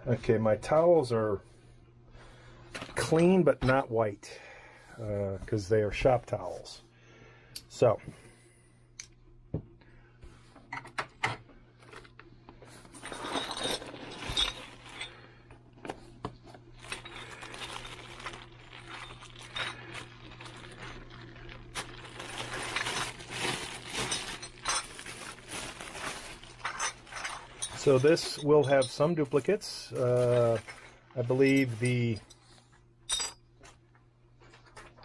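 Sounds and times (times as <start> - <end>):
plastic bag crinkling: 13.0 - 15.3, 16.8 - 28.4, 29.2 - 32.2.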